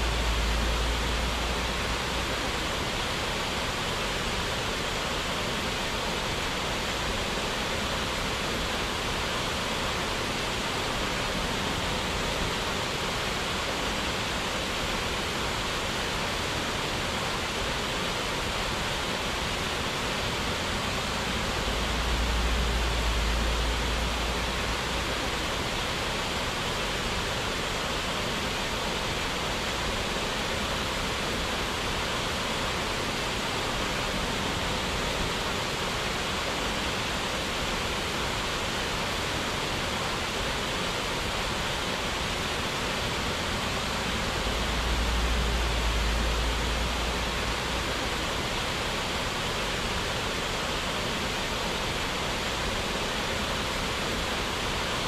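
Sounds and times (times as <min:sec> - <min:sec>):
low rumble: 0:00.0 - 0:02.7, 0:21.3 - 0:25.2, 0:43.9 - 0:48.0
water rushing over waterfall: 0:00.0 - 0:55.0.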